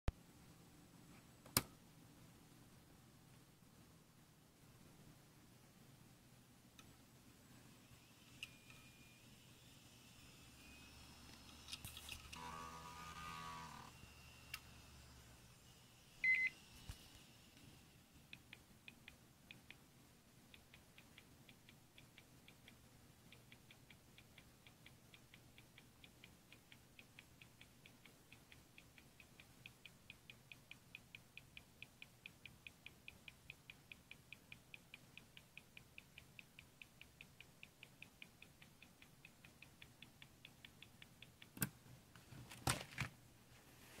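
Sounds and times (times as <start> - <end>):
laptop ticking faintly: 17.4 - 42.2
sharp clicks: 18.3 - 41.8.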